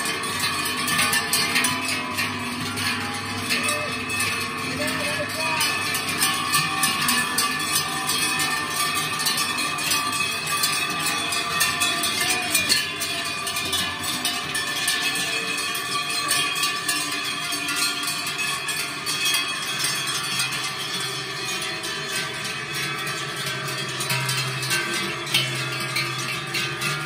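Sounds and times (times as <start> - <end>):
cowbells clanging: 0.0 - 27.0.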